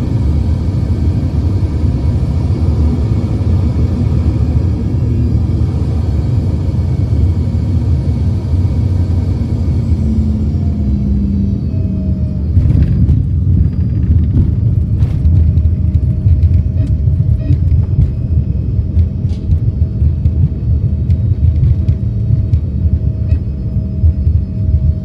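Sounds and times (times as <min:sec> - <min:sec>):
engine hum: 0:00.0 - 0:25.0
jet cabin rumble on runway: 0:00.0 - 0:25.0.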